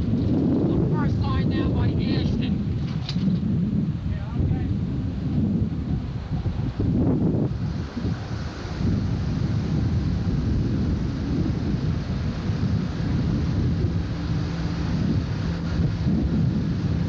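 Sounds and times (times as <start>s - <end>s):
vehicle engine and road noise: 0.0s - 17.0s
wind buffeting microphone: 0.0s - 17.0s.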